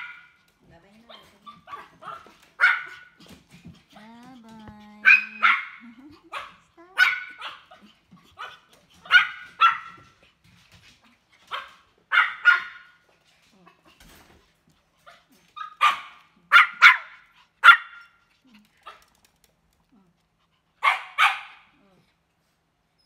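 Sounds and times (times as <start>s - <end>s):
dog barking: 0.0s - 0.4s, 1.2s - 3.2s, 5.0s - 10.1s, 11.5s - 13.0s, 15.6s - 18.2s, 20.8s - 21.8s.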